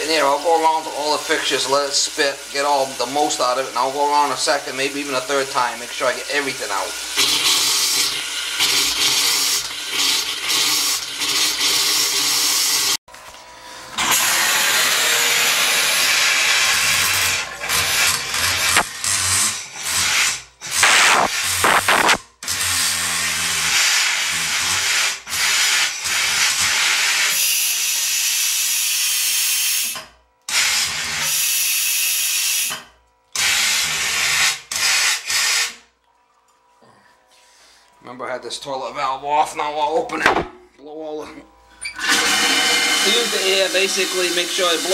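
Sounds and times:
compressed air hissing from faucet: 0.2s - 12.9s
water spitting and sputtering: 0.2s - 13.0s.

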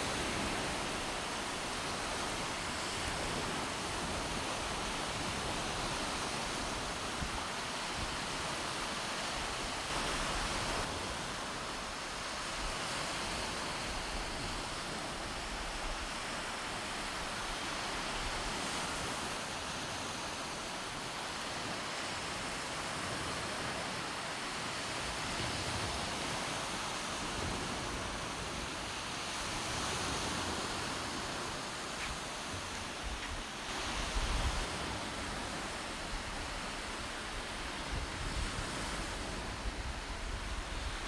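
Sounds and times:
ocean surf rushing on shore: 0.0s - 41.0s.

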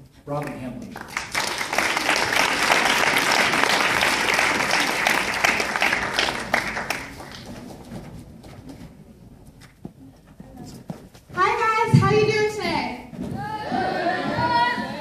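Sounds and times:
audience applauding: 0.5s - 7.8s.

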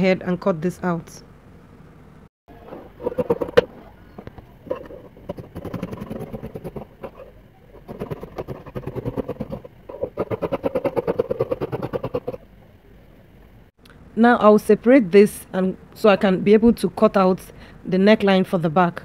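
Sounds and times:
scissors snipping fabric: 5.3s - 12.4s.

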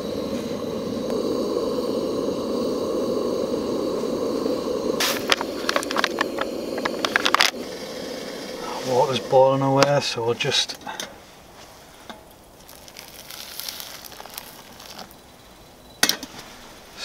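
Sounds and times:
gas burner rushing: 0.0s - 17.0s
sharp clicks and rattles: 5.1s - 7.6s.

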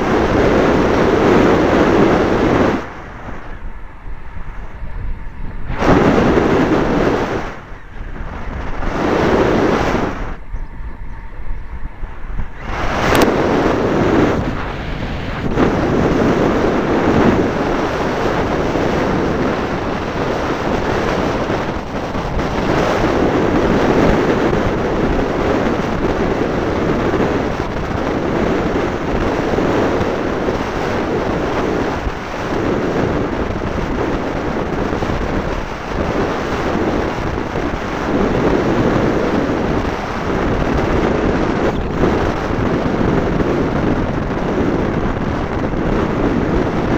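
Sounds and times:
wind buffeting microphone: 0.0s - 46.9s.

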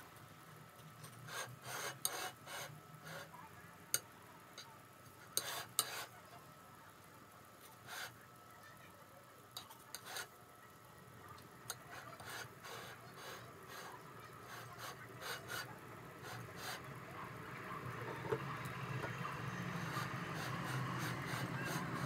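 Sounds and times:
spatula scraping frosting: 1.3s - 3.3s, 5.4s - 6.1s, 7.9s - 8.2s, 9.9s - 10.3s, 11.7s - 16.9s, 19.4s - 22.0s.

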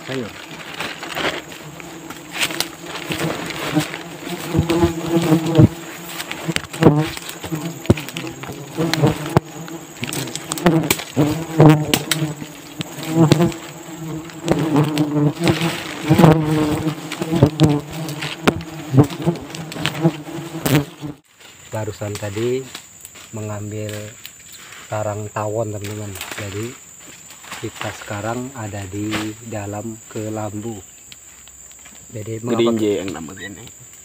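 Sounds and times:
rustling leaves and handling knocks: 0.0s - 33.7s
insects buzzing: 0.0s - 34.0s.

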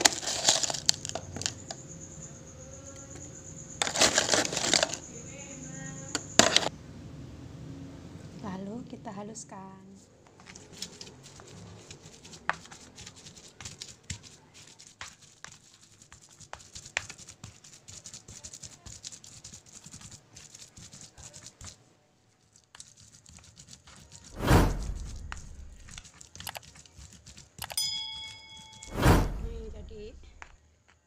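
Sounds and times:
stone pestle grinding in mortar: 3.5s - 5.1s, 6.1s - 6.7s, 10.5s - 21.8s, 22.7s - 29.0s.

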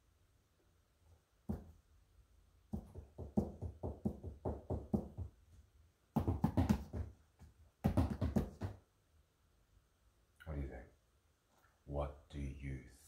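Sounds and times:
quick knocks on hard surface: 6.2s - 7.2s, 7.8s - 8.8s.

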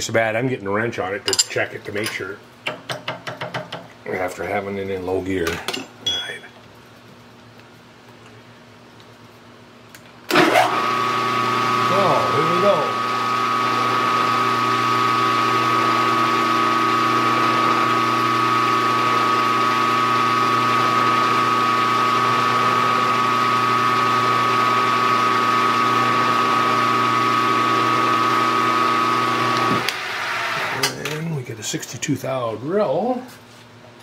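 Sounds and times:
milling machine spindle whine: 10.3s - 30.9s.

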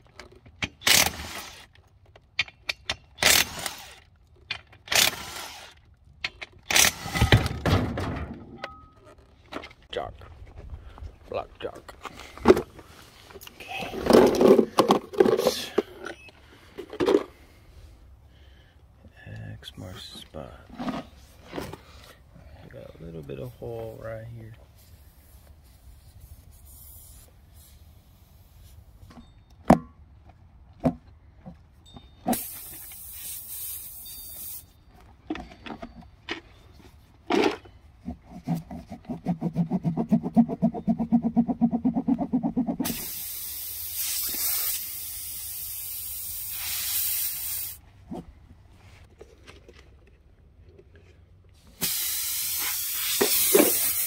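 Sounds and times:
air hissing out: 26.0s - 28.8s, 32.3s - 34.8s, 42.8s - 47.8s, 51.6s - 54.0s.

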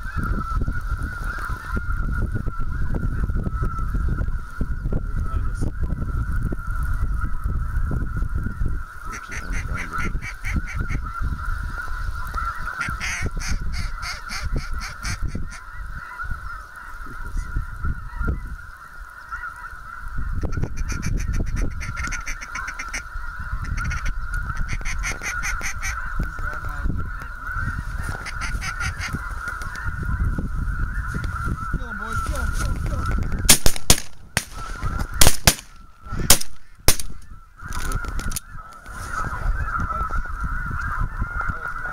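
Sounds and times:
wind rumbling on microphone: 0.0s - 41.9s
shotgun shots: 33.5s - 34.6s, 35.2s - 37.2s.

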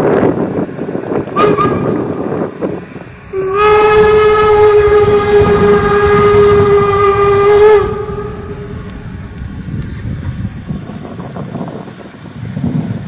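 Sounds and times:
low rumble of train: 0.0s - 13.0s
steam locomotive whistle: 1.3s - 9.4s.

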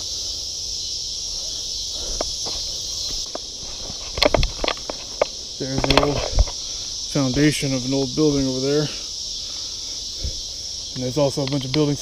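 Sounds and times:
high insect chorus: 0.0s - 12.0s
footsteps on dirt and grass: 1.4s - 9.4s.

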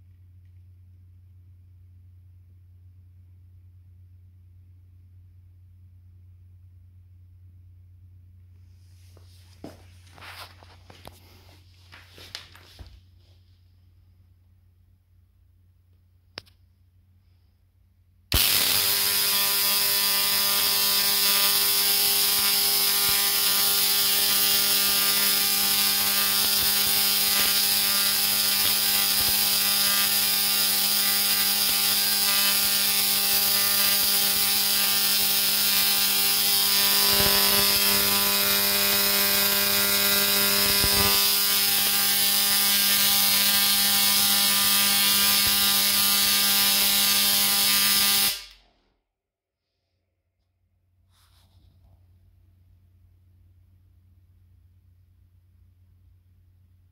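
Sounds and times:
tesla coil sparks buzzing: 18.3s - 48.7s.

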